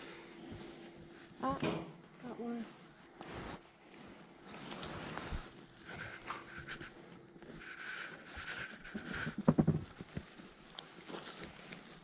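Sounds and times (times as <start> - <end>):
knocks and rubs on microphone: 7.6 - 10.4
hands rummaging through soil: 7.7 - 12.0.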